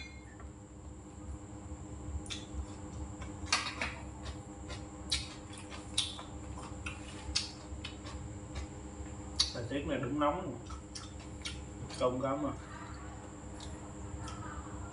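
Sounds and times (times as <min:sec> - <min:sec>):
faint steady hum: 0:00.0 - 0:14.9
person chewing: 0:02.2 - 0:09.6, 0:10.6 - 0:12.0, 0:12.9 - 0:14.6.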